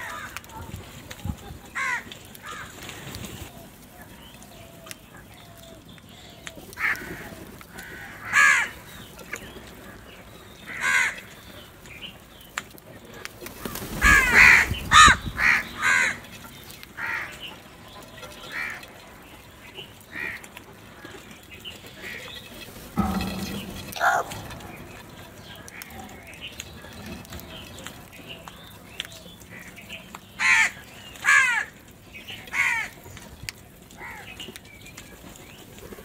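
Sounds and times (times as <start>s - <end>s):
crows cawing: 0.0s - 0.5s, 1.7s - 3.0s, 6.2s - 9.0s, 10.7s - 11.4s, 13.6s - 17.4s, 18.4s - 18.9s, 20.1s - 21.2s, 23.0s - 24.6s, 30.4s - 31.8s, 32.4s - 33.0s, 34.0s - 34.3s
flurry of wings: 13.2s - 16.2s.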